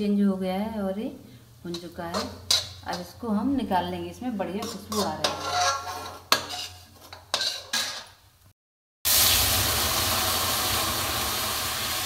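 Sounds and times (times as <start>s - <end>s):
metal spoon scraping a pan: 1.7s - 3.2s, 4.4s - 8.2s
water hissing in hot pan: 9.1s - 12.0s.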